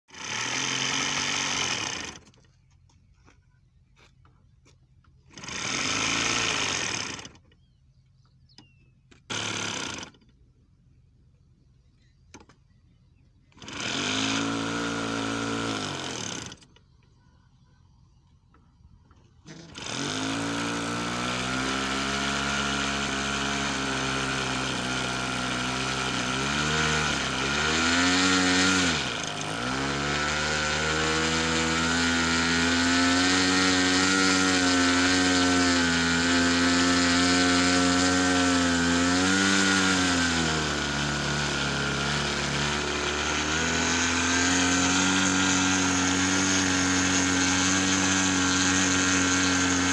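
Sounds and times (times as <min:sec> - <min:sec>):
electric starter cranking: 0:00.1 - 0:02.5, 0:05.3 - 0:07.7, 0:09.1 - 0:10.4, 0:13.5 - 0:16.9, 0:19.4 - 0:49.9
model airplane engine running: 0:19.5 - 0:49.9.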